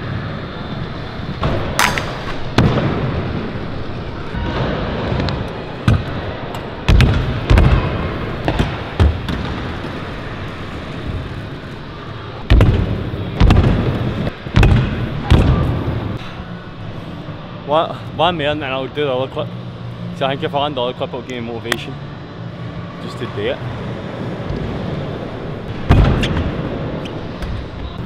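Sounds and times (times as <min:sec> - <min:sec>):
scooter wheels rolling: 0:08.2 - 0:14.3.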